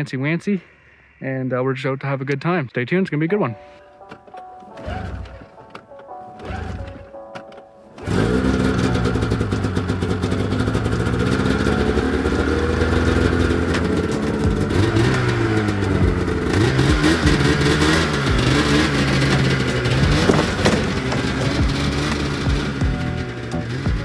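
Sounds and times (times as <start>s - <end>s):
snowmobile engine idling and revving: 6.4s - 7.1s, 8.0s - 24.0s.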